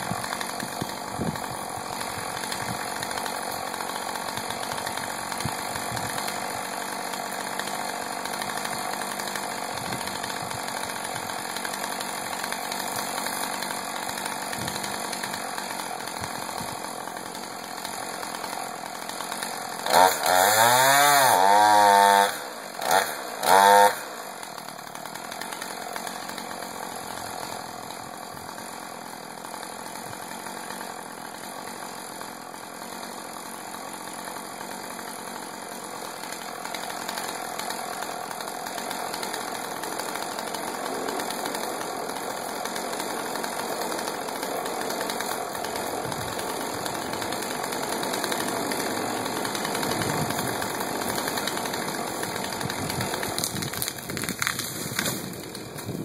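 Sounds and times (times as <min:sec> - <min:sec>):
chainsaw revving and idling: 0:00.0 - 0:56.0.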